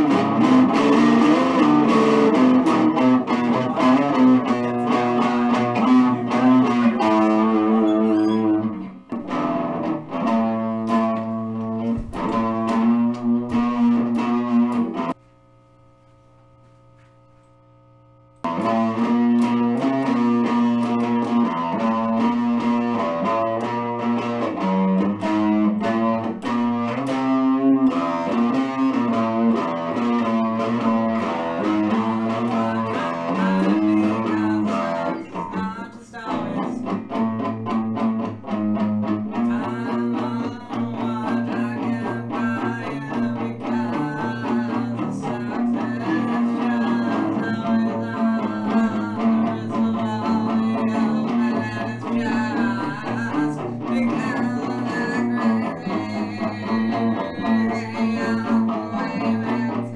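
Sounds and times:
guitar music: 0.0s - 15.2s, 18.4s - 59.9s.

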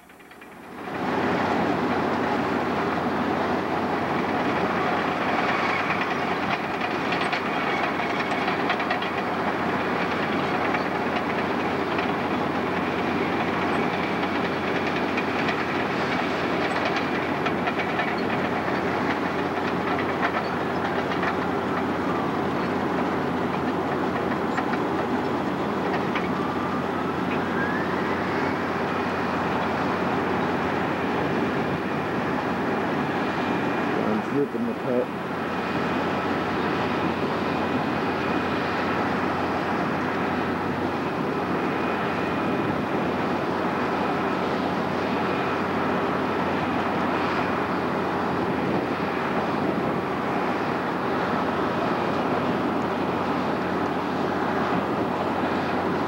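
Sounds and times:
diesel engine under load: 0.0s - 56.0s
steel tracks clanking: 3.7s - 27.4s.

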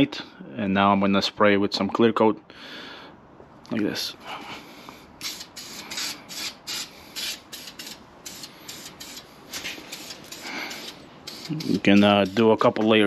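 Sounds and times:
aerosol spray hissing: 5.2s - 12.7s.

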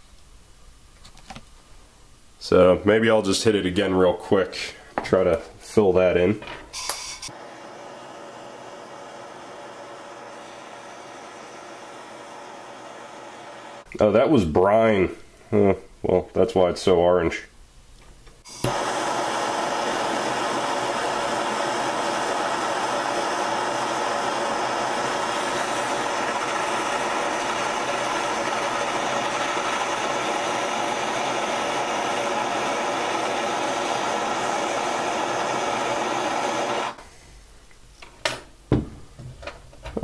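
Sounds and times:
gas torch hissing: 6.7s - 13.9s, 18.4s - 37.0s.

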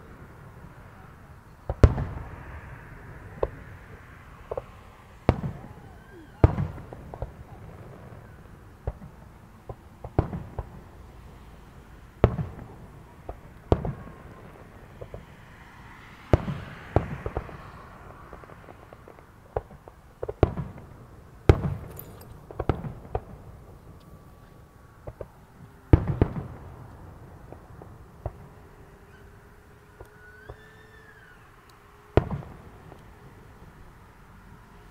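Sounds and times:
firework shells booming: 18.3s - 23.7s, 32.1s - 32.8s.

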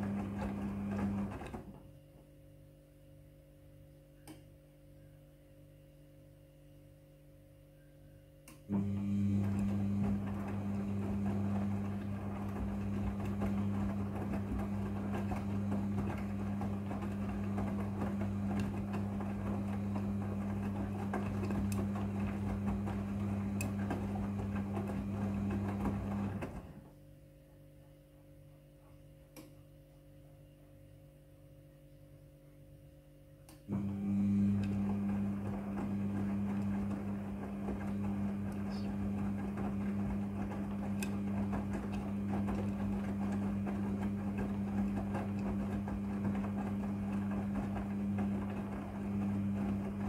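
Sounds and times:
washing machine motor humming: 0.0s - 2.6s, 8.5s - 27.0s, 33.4s - 50.0s.

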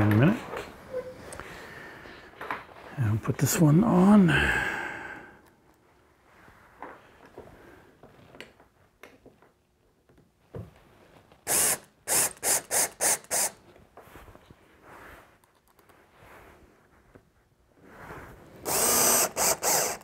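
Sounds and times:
cordless drill driving a screw: 11.5s - 13.6s, 18.6s - 20.0s.

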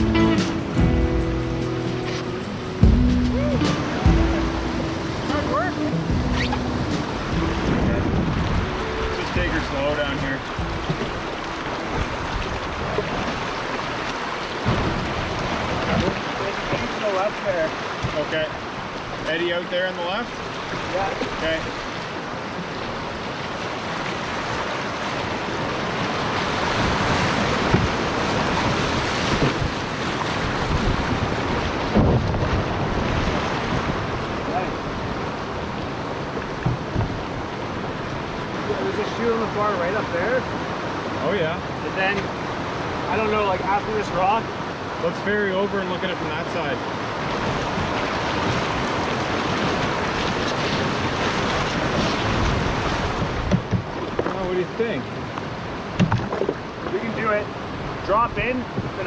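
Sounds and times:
whitewater rapids rushing: 0.0s - 59.0s
sharp water splash: 1.9s - 19.4s, 46.9s - 54.4s
wind on microphone: 2.0s - 14.0s, 23.0s - 38.8s, 47.0s - 54.3s.

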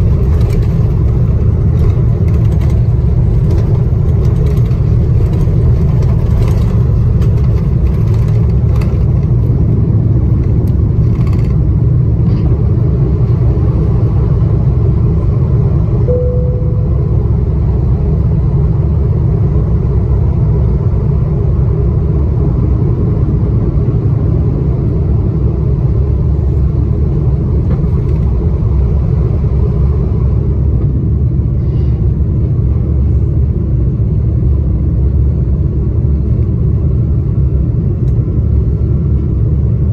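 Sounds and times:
knocks and rattles: 0.0s - 11.6s
loud jet engine rumble: 0.0s - 39.9s
short cabin tone: 16.0s - 17.5s.

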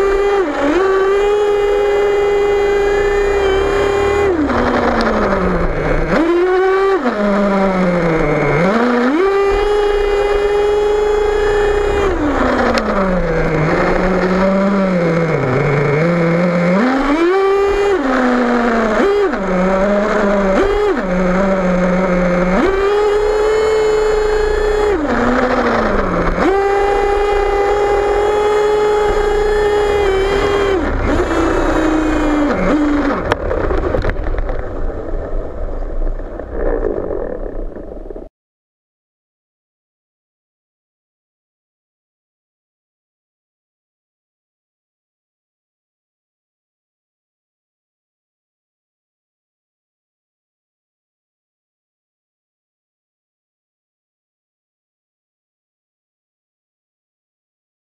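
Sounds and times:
model engine revving: 0.0s - 38.3s.

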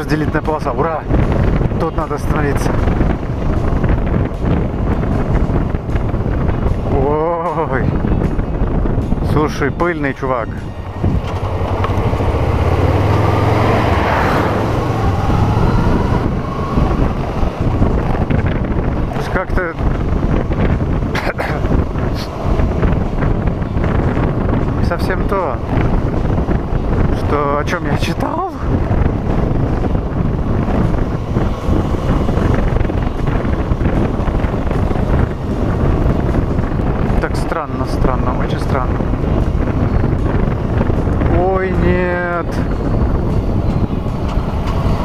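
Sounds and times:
road noise: 0.0s - 45.0s
wind rushing on microphone: 0.0s - 45.0s
motorcycle engine running: 10.4s - 37.2s, 42.7s - 45.0s
truck passing close by: 10.5s - 19.2s, 28.7s - 37.0s, 42.8s - 45.0s.

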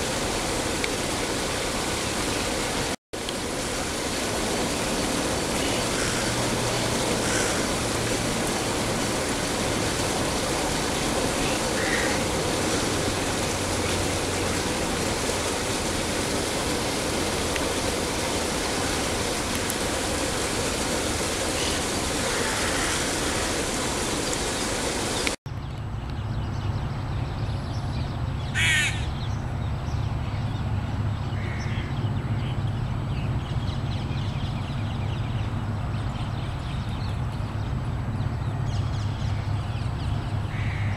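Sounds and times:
steady rushing noise: 0.0s - 25.4s
bird call: 28.5s - 29.2s.

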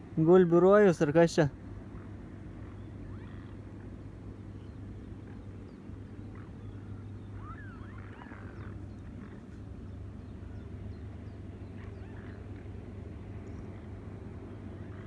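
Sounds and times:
steady low rumble: 0.0s - 15.0s
swans calling: 1.8s - 10.8s.

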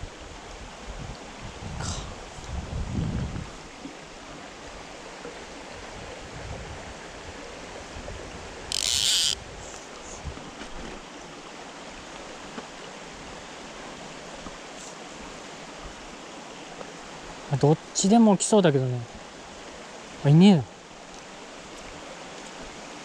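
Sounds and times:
stream flowing over stones: 0.0s - 23.0s
fishing reel zip: 8.7s - 9.4s.

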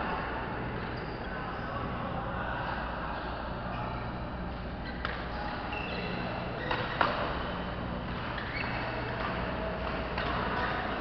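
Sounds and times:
shoes squeaking on court: 4.7s - 9.5s.

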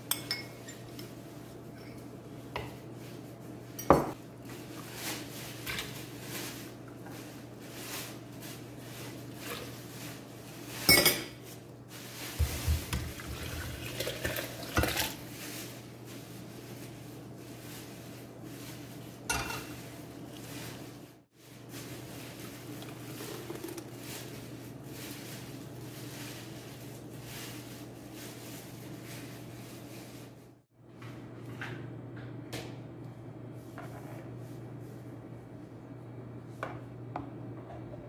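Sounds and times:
liquid pouring into blender jar: 22.7s - 24.0s.

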